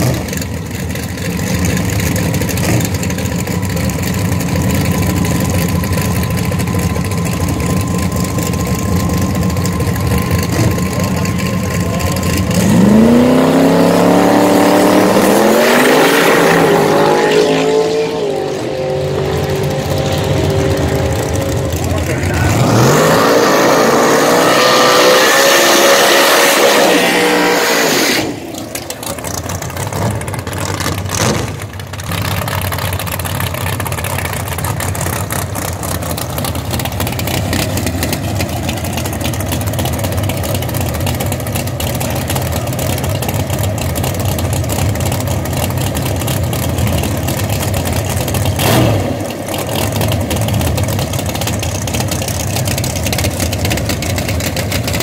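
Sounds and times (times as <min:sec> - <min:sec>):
engine at high revs: 0:00.0 - 0:00.5, 0:01.9 - 0:03.3, 0:07.4 - 0:32.8, 0:33.8 - 0:55.0
drag car engine idling: 0:00.0 - 0:14.2, 0:18.5 - 0:24.1, 0:28.3 - 0:55.0
engine revving: 0:07.6 - 0:32.7, 0:46.1 - 0:55.0.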